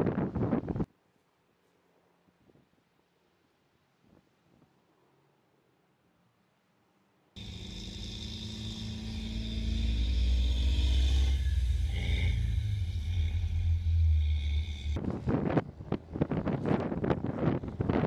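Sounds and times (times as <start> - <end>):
tracked vehicle engine driving past: 7.4 - 15.0.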